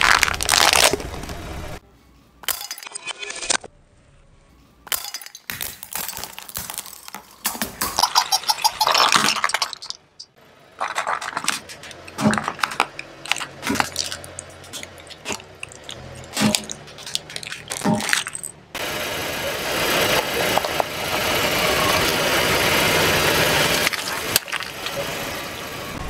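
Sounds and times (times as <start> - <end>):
plastic cracking and crunching: 0.0 - 1.4, 5.6 - 7.9, 10.8 - 18.5, 23.8 - 24.9.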